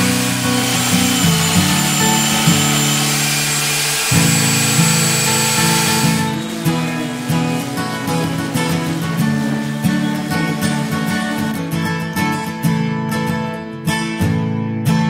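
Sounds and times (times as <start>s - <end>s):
belt sander sanding wood: 0.0s - 11.5s
background music: 0.0s - 12.7s.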